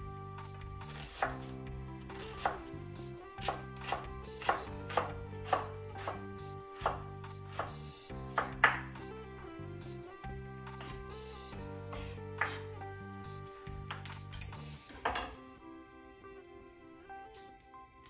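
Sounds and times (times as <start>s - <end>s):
soft background music: 0.0s - 18.0s
knife chopping on wooden board: 0.9s - 1.5s, 2.1s - 2.8s, 3.4s - 6.2s, 6.8s - 9.0s, 12.0s - 12.7s.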